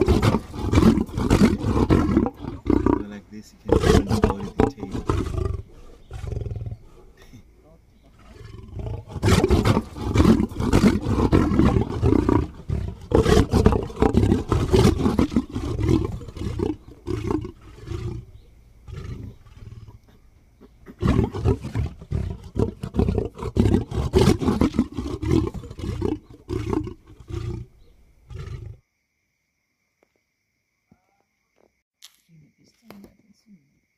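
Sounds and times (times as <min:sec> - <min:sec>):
lion deep pulsing roars: 0:00.0 - 0:03.0, 0:08.1 - 0:20.0.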